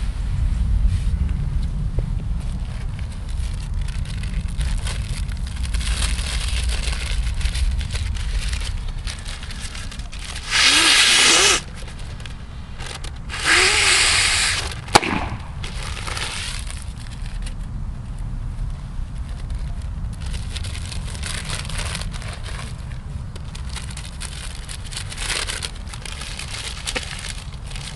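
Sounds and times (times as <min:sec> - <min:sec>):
paper bag rustling: 0:02.7 - 0:17.6, 0:19.2 - 0:27.9
paper bag bursting: 0:03.6 - 0:17.4, 0:23.4 - 0:27.9
breaths blowing into bag: 0:08.3 - 0:16.7.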